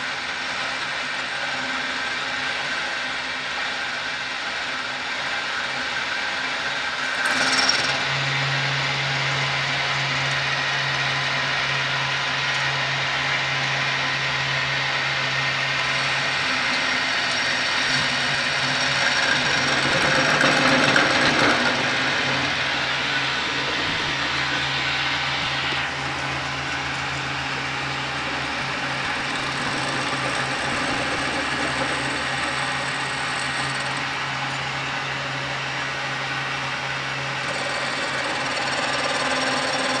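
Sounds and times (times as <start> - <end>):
high motor whine: 0.0 - 40.0
lathe motor hum: 17.6 - 34.2.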